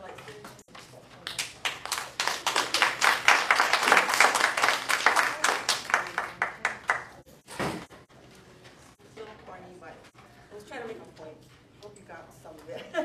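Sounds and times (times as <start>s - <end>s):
audience clapping: 1.3s - 7.2s.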